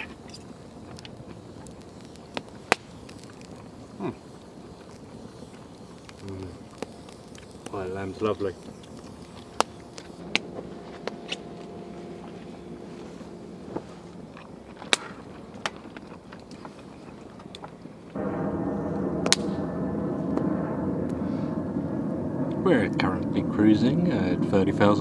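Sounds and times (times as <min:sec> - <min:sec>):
aircraft drone overhead: 0:00.0 - 0:25.0.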